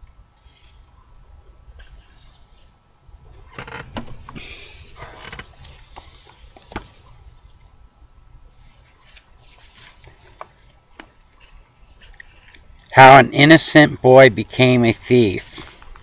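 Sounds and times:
low steady hum: 0.0 - 16.0
handling rustles: 8.6 - 12.6.

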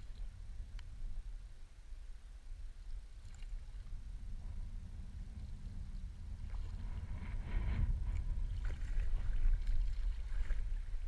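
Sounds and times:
steady low rumble: 0.0 - 11.0
paddle dipping into water: 6.3 - 11.0
water splashing and dripping: 8.6 - 11.0.

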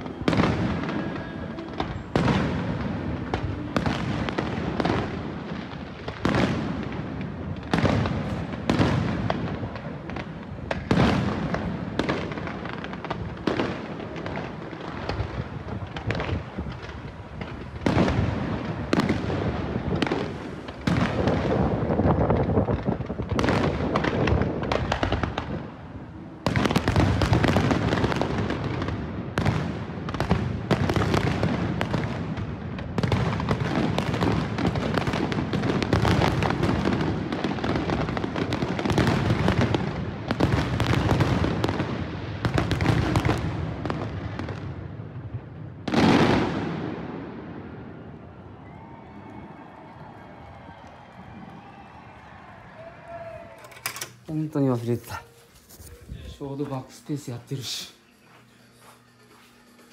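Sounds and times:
fireworks bangs and pops: 0.0 - 45.0, 45.7 - 47.2
fireworks crackling: 0.0 - 59.9.

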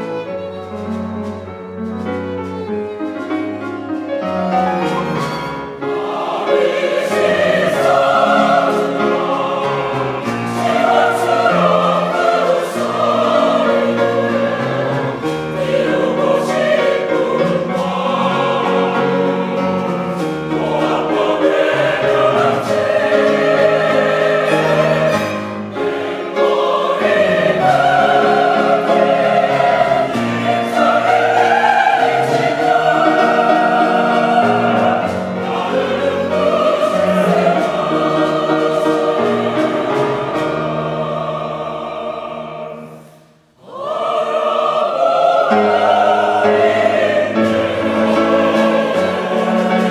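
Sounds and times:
strings and piano accompaniment: 0.0 - 49.9
mixed choir singing: 4.0 - 49.9.

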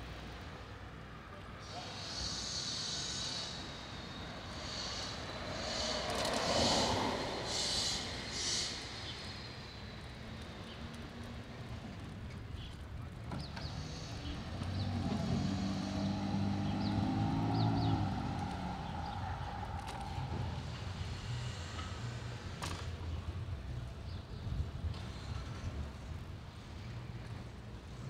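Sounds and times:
street traffic: 0.0 - 28.0
vehicle engine humming: 0.1 - 28.0.

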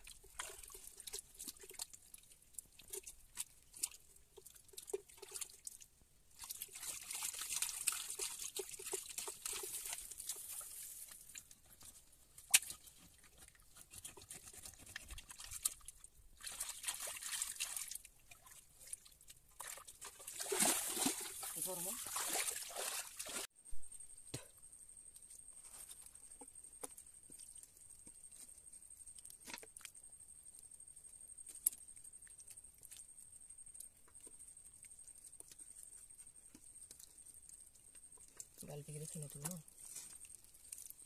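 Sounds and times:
water splashing and trickling: 0.0 - 23.5, 38.1 - 41.0.

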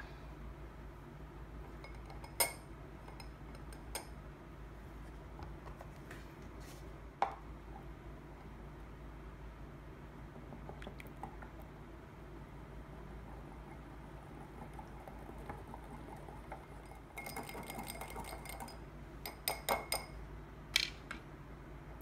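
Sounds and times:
spoon clinking on glass bowl: 1.8 - 4.2, 16.5 - 20.2.

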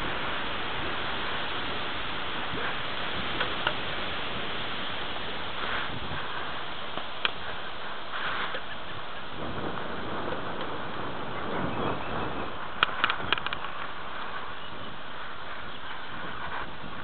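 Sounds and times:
bike riding over grass: 0.0 - 17.0
sharp clicks: 12.8 - 13.8.

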